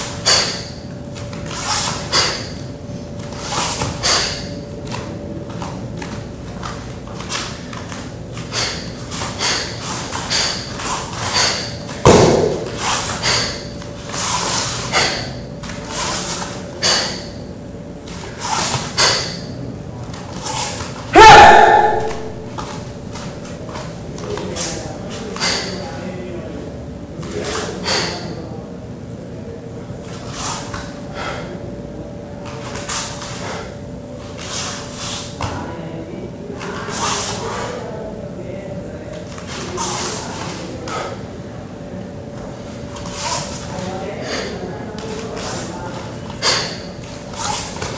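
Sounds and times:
faint hum: 0:00.0 - 0:47.9
feet swishing on foam mats: 0:05.6 - 0:16.6
heavy thump on foam mats: 0:12.0 - 0:12.9.

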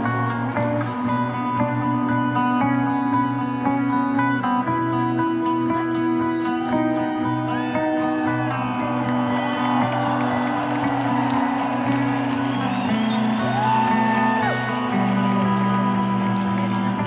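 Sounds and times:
whistle from crowd: 0:06.2 - 0:10.7, 0:11.3 - 0:14.5
crowd whooping: 0:06.3 - 0:16.9.

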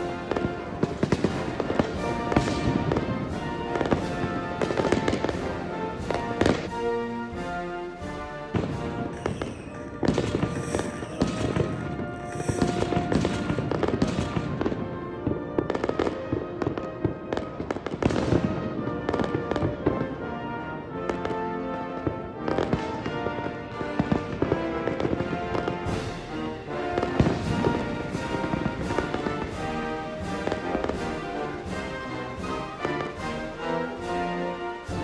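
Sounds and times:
fireworks bursting and crackling: 0:00.0 - 0:35.0.

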